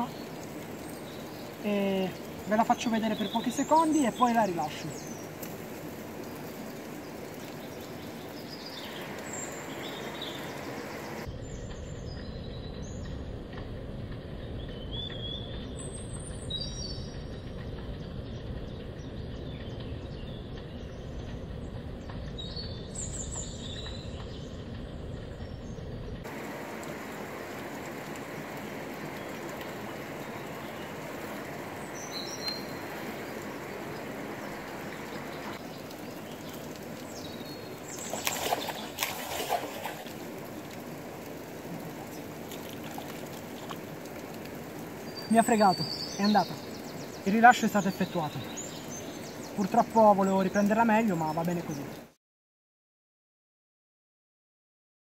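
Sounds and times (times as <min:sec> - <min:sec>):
river rushing: 0:00.0 - 0:11.3, 0:26.2 - 0:52.0
small birds chirping: 0:00.0 - 0:13.3, 0:14.4 - 0:52.2.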